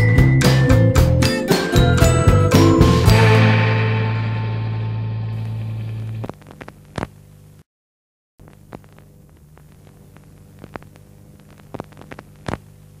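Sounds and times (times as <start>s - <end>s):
clicks and pops: 6.0s - 7.2s, 8.4s - 12.8s
faint low hum: 8.4s - 13.0s.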